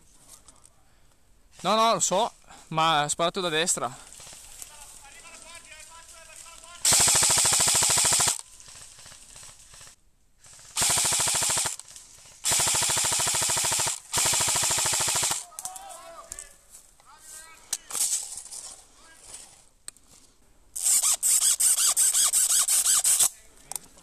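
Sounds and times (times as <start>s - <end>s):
airsoft rifle automatic bursts: 6.7s - 15.5s, 20.8s - 23.3s.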